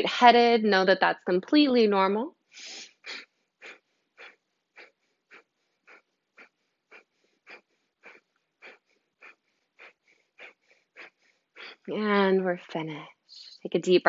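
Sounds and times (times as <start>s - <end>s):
forceful nasal exhalations: 2.5s - 11.9s.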